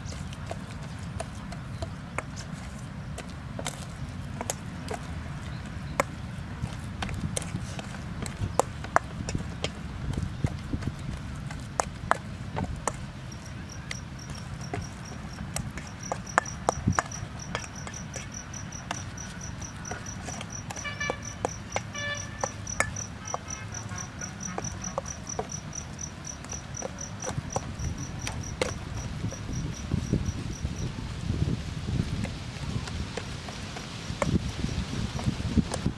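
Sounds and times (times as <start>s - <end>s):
insect chirping trill: 13.3s - 30.9s.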